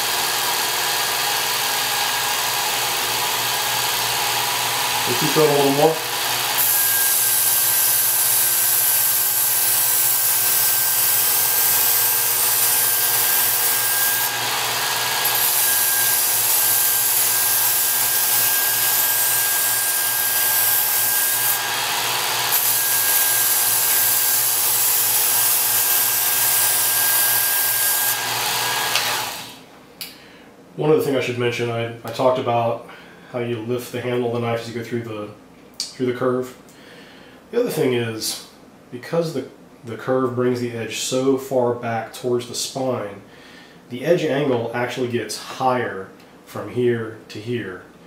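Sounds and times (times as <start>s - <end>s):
belt sharpener grinding knife: 0.0s - 29.4s.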